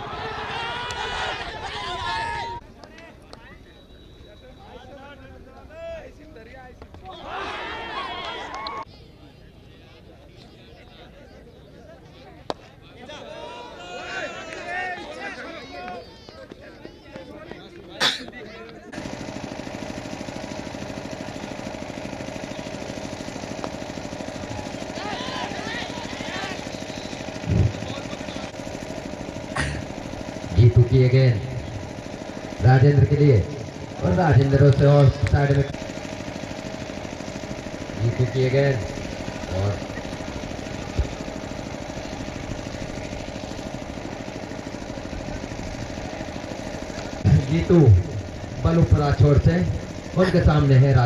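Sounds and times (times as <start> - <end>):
engine idling: 18.9 - 51.0.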